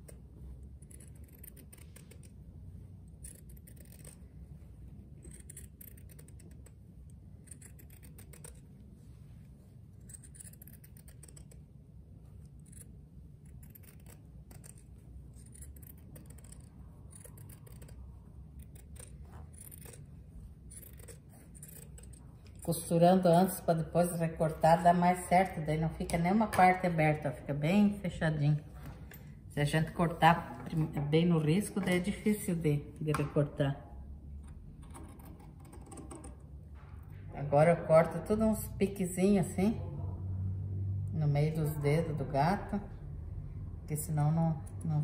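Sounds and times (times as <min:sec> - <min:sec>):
scissors snipping fabric: 0:00.0 - 0:04.4, 0:05.0 - 0:08.9, 0:09.8 - 0:23.6.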